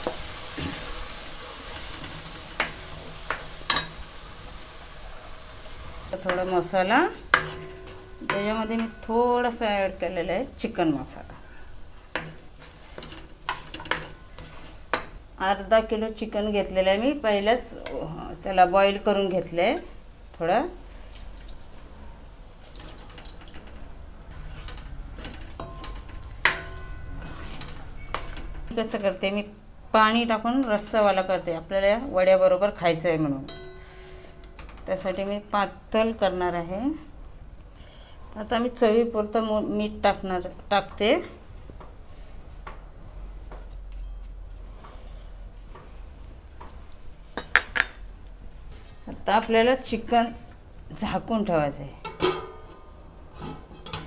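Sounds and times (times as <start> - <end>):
paste sizzling in oil: 0.0 - 15.4
spatula stirring: 6.0 - 15.3, 22.6 - 28.6
metal pan clank: 7.3 - 9.2, 25.2 - 28.4, 33.5 - 34.7, 52.0 - 52.8
spatula scraping and squelching: 12.2 - 15.1, 24.3 - 28.5.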